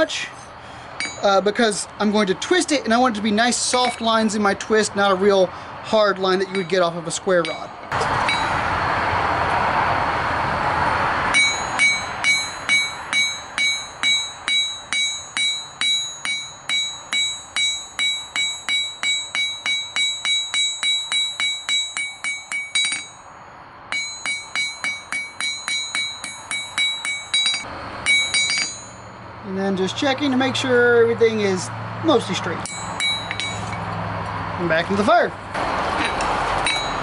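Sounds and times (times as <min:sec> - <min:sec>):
hammer striking steel on anvil: 0:01.0 - 0:01.4, 0:03.7 - 0:04.1, 0:06.4 - 0:06.8, 0:07.4 - 0:08.7, 0:11.3 - 0:29.2, 0:32.6 - 0:33.9, 0:36.0 - 0:37.0
steady rushing noise: 0:07.8 - 0:29.6.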